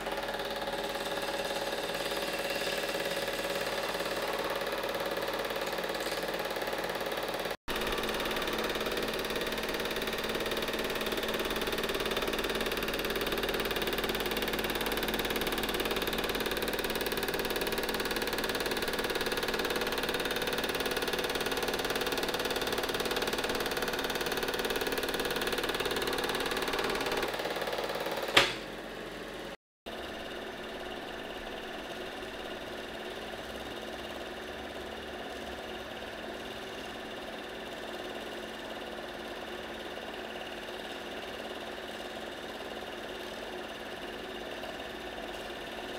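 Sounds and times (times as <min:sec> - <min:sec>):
film projector whirring: 0:00.0 - 0:45.9.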